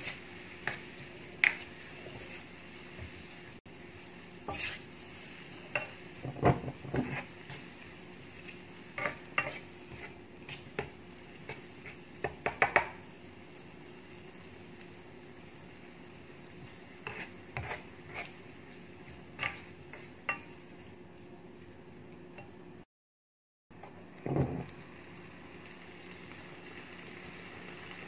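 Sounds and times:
spatula scraping a wok: 0:00.0 - 0:12.4, 0:16.6 - 0:20.6
food sizzling: 0:00.0 - 0:22.9, 0:23.9 - 0:28.0.

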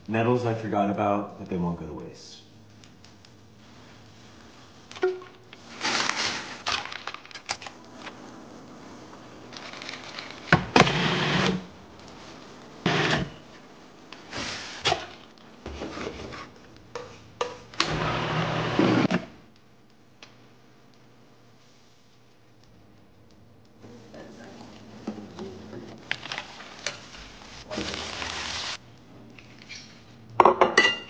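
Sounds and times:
food processor whirring bursts: 0:12.8 - 0:13.3, 0:17.8 - 0:19.1.

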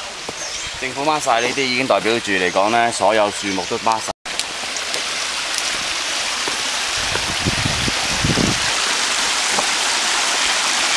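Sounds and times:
stream water rushing over rocks: 0:03.9 - 0:10.9.

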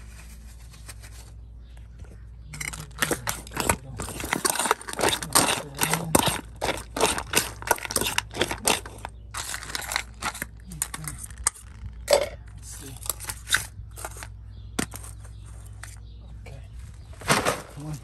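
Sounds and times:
fork scraping metal bowl: 0:02.6 - 0:12.4.

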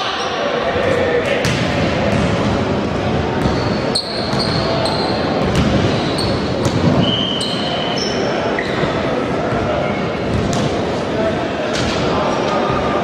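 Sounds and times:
basketball bouncing: 0:01.4 - 0:02.5, 0:05.4 - 0:05.8
sneaker squeaks: 0:03.4 - 0:10.6.

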